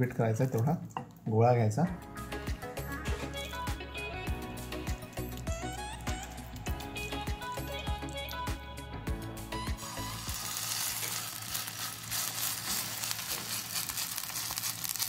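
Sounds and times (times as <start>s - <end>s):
background music: 0.0s - 14.9s
dough sizzling in hot oil: 9.7s - 15.0s.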